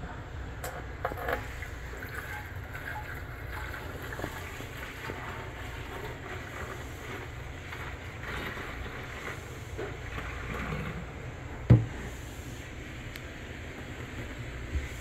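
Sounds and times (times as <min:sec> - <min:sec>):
liquid pouring through funnel: 0:01.0 - 0:12.8.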